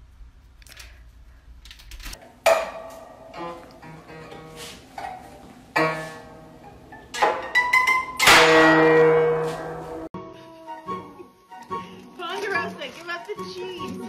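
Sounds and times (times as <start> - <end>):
guzheng strings plucked: 5.8 - 10.1.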